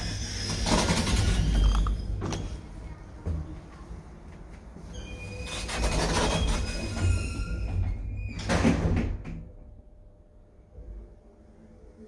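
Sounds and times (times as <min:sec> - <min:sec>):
elevator doors closing: 0:00.0 - 0:02.8, 0:04.8 - 0:09.5.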